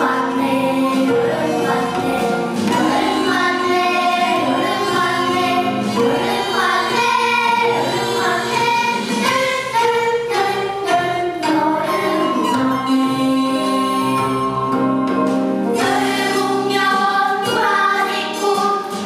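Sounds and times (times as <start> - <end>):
girls singing in unison: 0.0 - 12.6, 15.8 - 19.0.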